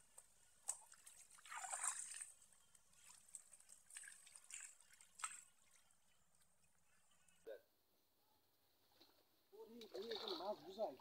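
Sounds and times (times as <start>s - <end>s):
shallow water splashing and trickling: 0.0s - 7.5s, 9.7s - 11.0s.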